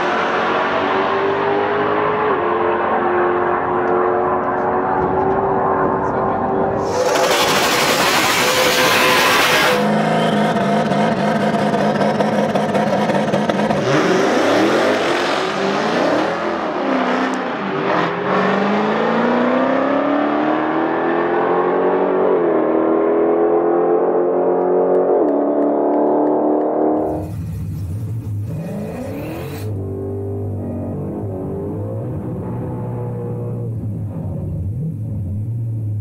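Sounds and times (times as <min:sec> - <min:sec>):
drag car engine revving: 0:00.0 - 0:22.0, 0:24.2 - 0:36.0
tyres screeching: 0:06.8 - 0:10.4.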